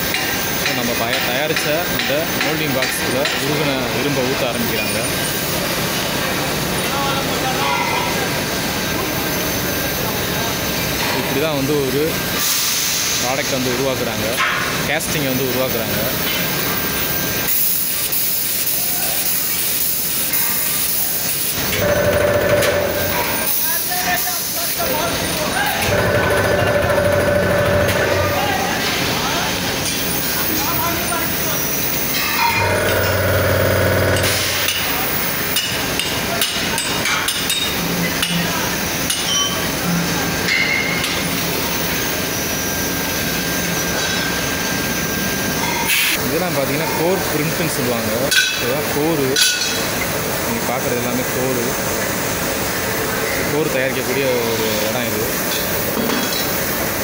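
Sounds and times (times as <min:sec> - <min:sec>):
foundry background noise: 0:00.0 - 0:57.0
molten metal hissing: 0:16.5 - 0:35.6
steady industrial din: 0:21.6 - 0:24.0, 0:24.9 - 0:35.6
steady humming tone: 0:32.4 - 0:34.9.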